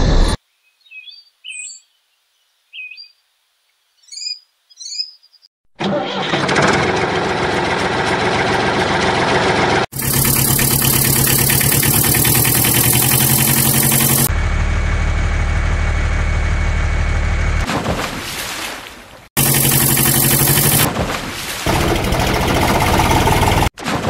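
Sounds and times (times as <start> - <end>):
engine running: 5.8 - 17.7, 19.4 - 20.9, 21.7 - 23.7
deep steady engine hum: 6.4 - 17.6, 19.4 - 20.9, 21.7 - 23.7.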